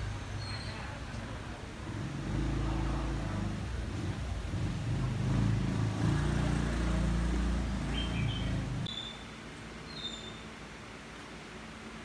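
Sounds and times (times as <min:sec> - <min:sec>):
motorcycle engine revving: 0:01.6 - 0:08.9.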